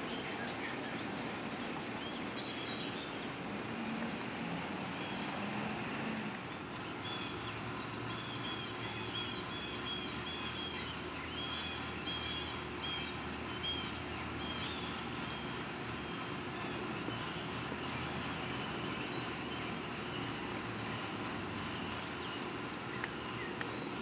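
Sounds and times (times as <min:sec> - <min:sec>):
vehicle engines and road noise: 0:00.0 - 0:24.0
bird chirping: 0:00.1 - 0:04.2, 0:06.5 - 0:20.6, 0:21.5 - 0:24.0.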